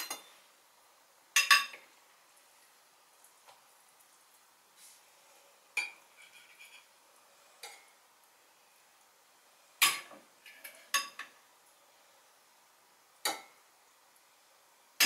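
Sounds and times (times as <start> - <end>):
cutlery clinking on ceramic dish: 0.0 - 0.4, 1.4 - 1.8, 9.8 - 11.3.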